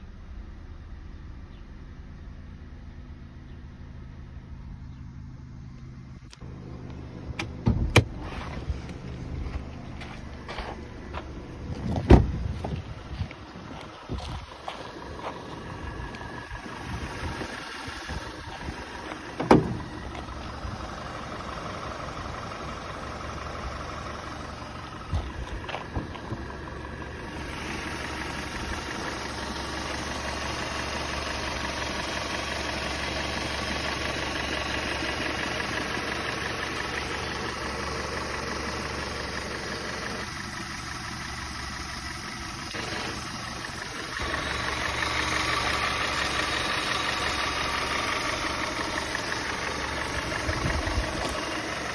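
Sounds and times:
car engine idling: 0:00.0 - 0:51.9
loud thump: 0:07.6 - 0:08.2, 0:11.9 - 0:12.4, 0:19.4 - 0:19.9.

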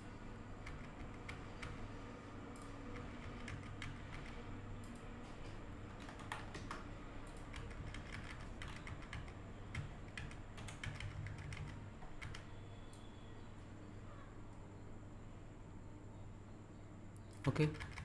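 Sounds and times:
low steady hum: 0:00.0 - 0:18.0
keyboard and mouse clicking: 0:05.9 - 0:13.1.

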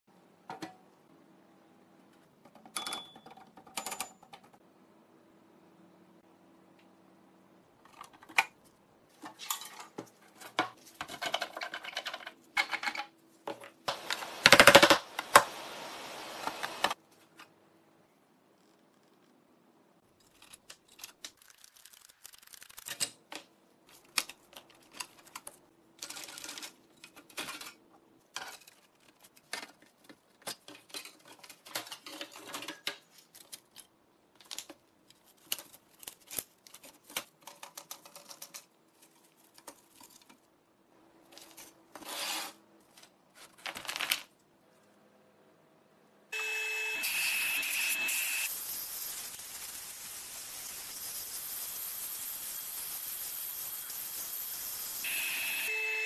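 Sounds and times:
blast gun hissing and whistling: 0:47.0 - 0:56.0.

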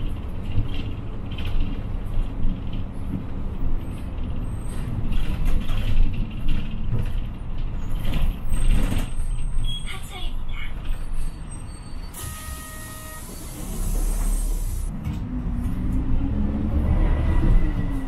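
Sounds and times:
bus engine drone: 0:00.0 - 0:18.0
road noise: 0:00.0 - 0:18.0
air brake hiss: 0:12.1 - 0:14.9.

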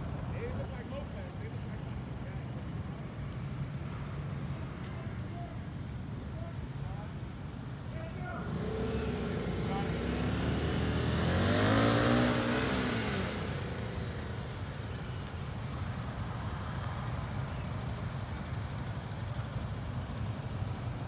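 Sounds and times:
motorcycle engines rumbling at low speed: 0:00.0 - 0:21.0
motorcycle engine revving: 0:08.4 - 0:15.3.

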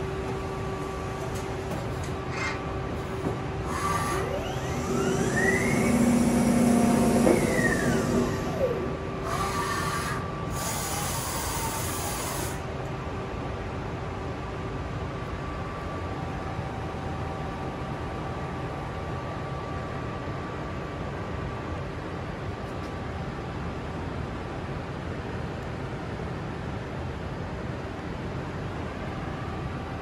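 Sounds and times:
steady machine hum: 0:00.0 - 0:30.0
motor whine: 0:03.0 - 0:12.6.

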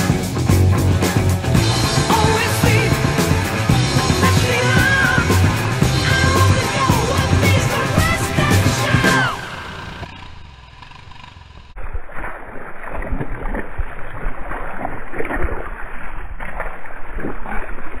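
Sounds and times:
music: 0:00.0 - 0:09.8
boots splashing through mud puddle: 0:12.0 - 0:18.0.

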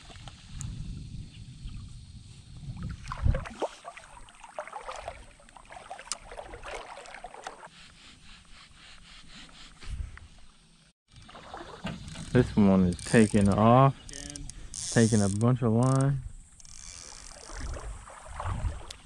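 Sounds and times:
water splashing and sloshing: 0:02.6 - 0:07.8, 0:11.1 - 0:15.1, 0:16.6 - 0:19.0
fishing reel handling: 0:12.9 - 0:17.6.

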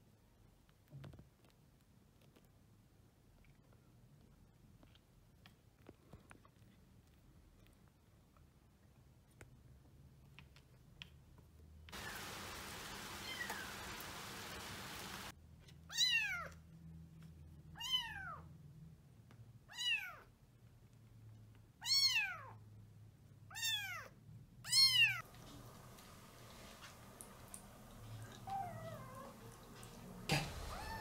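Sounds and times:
rain falling: 0:11.9 - 0:15.3, 0:25.2 - 0:31.0
kitten mewing: 0:28.2 - 0:31.0.

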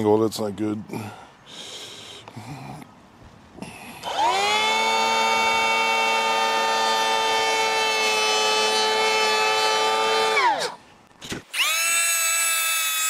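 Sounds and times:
power planer whining: 0:04.0 - 0:10.8, 0:11.6 - 0:13.0.

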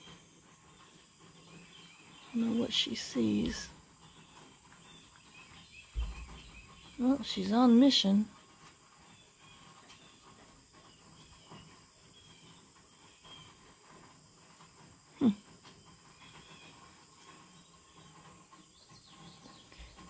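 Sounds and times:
soft bird chirps: 0:00.0 - 0:07.4.

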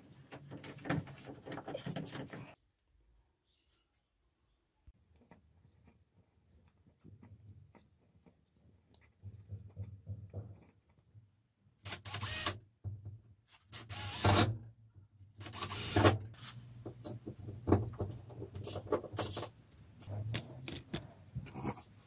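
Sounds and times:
cordless drill running: 0:11.9 - 0:12.6, 0:13.7 - 0:14.5, 0:15.4 - 0:16.6
parts clicking and knocking: 0:12.0 - 0:21.6.

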